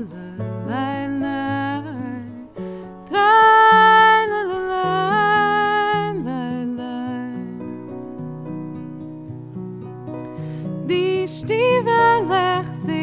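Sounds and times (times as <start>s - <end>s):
digital piano: 0.0s - 13.0s
strummed acoustic guitar: 1.8s - 13.0s
woman singing wordless refrain: 3.1s - 7.6s, 10.9s - 13.0s.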